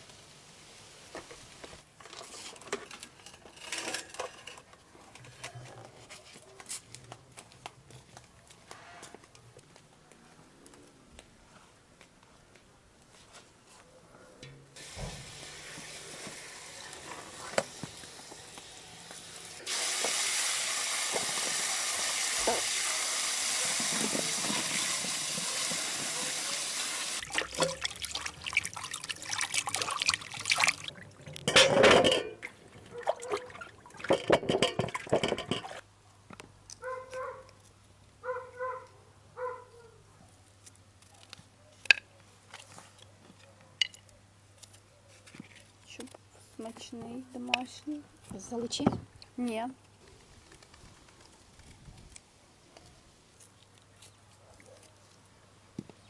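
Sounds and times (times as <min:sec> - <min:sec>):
hose nozzle spraying water: 0:14.8 - 0:30.9
plums splashing and knocking in water: 0:27.2 - 0:35.8.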